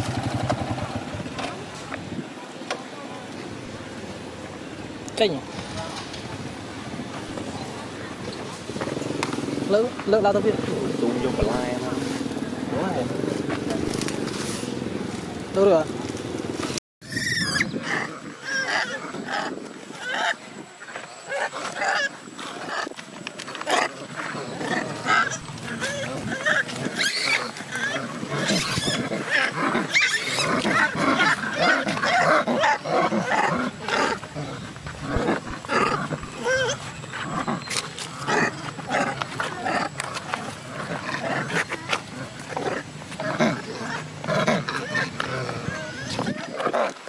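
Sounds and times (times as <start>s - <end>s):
macaques calling: 17.0s - 23.0s, 23.6s - 46.9s
monkeys squealing and grunting: 17.0s - 47.0s.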